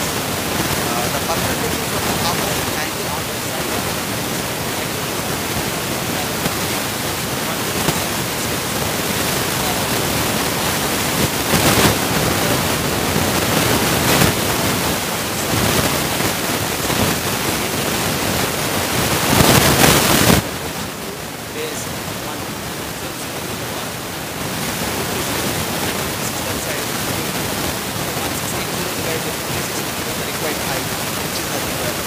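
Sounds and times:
recording hiss: 0.0s - 32.0s.

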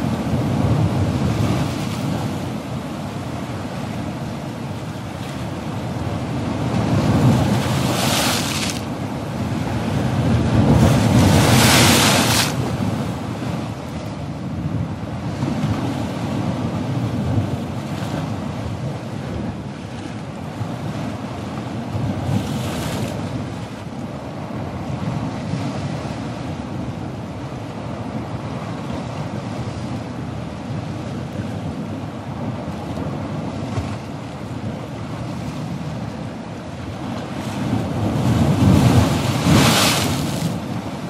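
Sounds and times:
turbulent water rushing: 0.0s - 13.8s, 35.8s - 41.0s
wind on microphone: 0.0s - 41.0s.

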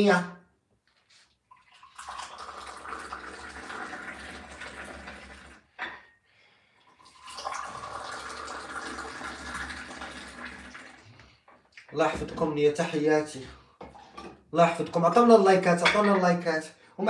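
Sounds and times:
tea pouring into a glass: 1.5s - 5.7s, 6.8s - 11.1s.

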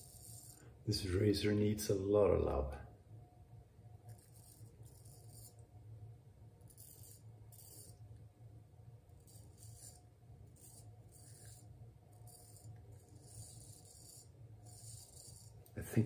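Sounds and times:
person speaking: 0.9s - 2.9s, 15.7s - 16.0s
straight razor scraping stubble: 9.2s - 15.8s.

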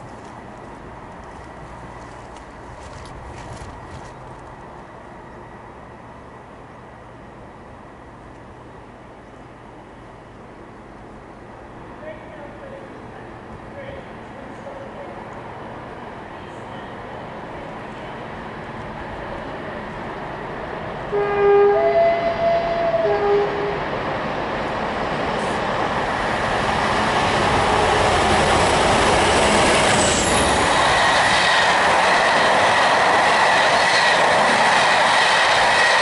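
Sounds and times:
train running past: 0.0s - 36.0s
two-tone train horn: 21.1s - 23.8s.

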